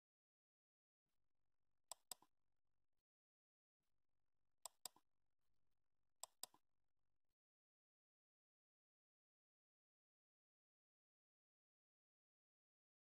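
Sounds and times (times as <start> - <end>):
mouse clicks: 1.9 - 2.3, 4.7 - 5.0, 6.2 - 6.6.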